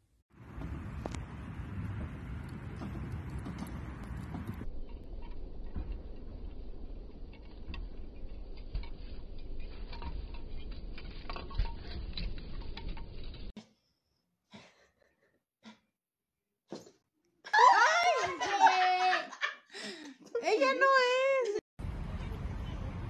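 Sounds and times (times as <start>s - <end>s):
wind rumble on microphone: 0.4s - 10.6s
light ticks and pattering: 1.9s - 13.5s.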